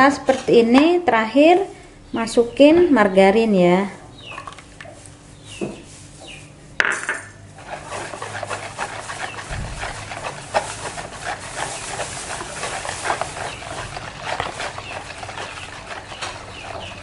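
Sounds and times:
batter sloshing: 7.5s - 17.0s.

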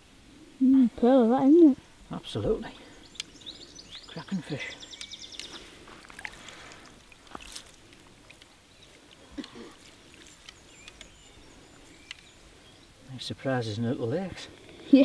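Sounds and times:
water sloshing and trickling: 5.4s - 12.7s
small water splashes: 5.6s - 12.0s.

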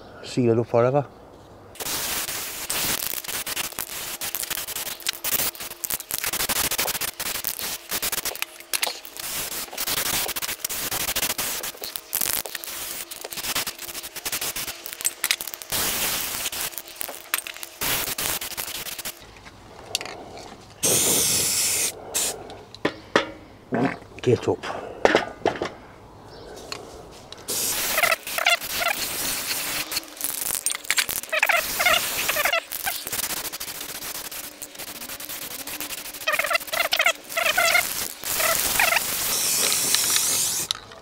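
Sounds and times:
aerosol spray can hissing: 1.8s - 19.2s, 20.8s - 22.4s, 27.5s - 40.7s.

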